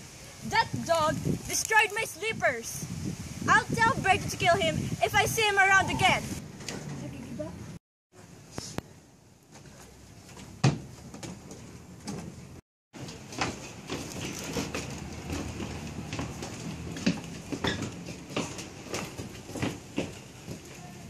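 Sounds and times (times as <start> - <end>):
footsteps on wooden floor: 13.0 - 20.8.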